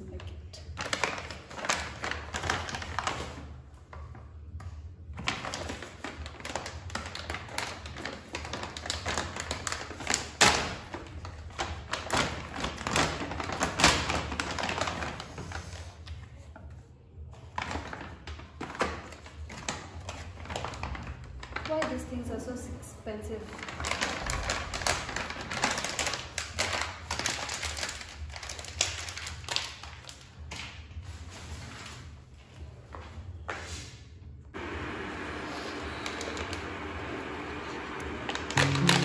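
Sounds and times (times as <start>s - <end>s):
plastic pouch crinkling: 23.5s - 30.3s.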